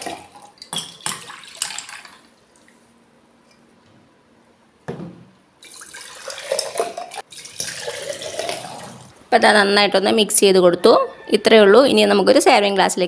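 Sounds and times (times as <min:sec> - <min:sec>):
juice pouring and splashing: 0:00.0 - 0:02.8, 0:05.6 - 0:09.2.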